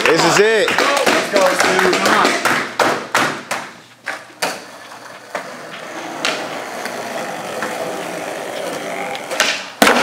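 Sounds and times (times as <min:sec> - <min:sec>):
skateboard wheels rolling: 0:04.1 - 0:10.0.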